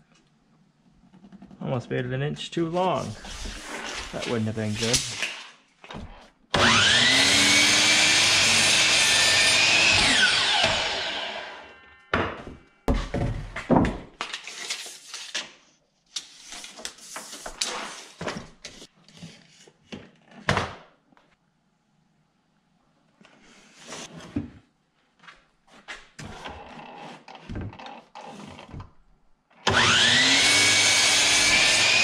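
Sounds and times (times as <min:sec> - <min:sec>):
miter saw whining: 0:06.6 - 0:11.8, 0:29.7 - 0:32.0.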